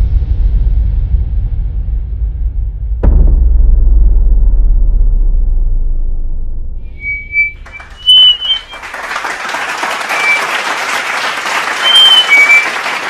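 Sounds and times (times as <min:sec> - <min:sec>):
low rumble: 0:00.0 - 0:08.8
crowd whistling: 0:06.9 - 0:13.0
audience applause: 0:07.5 - 0:13.0.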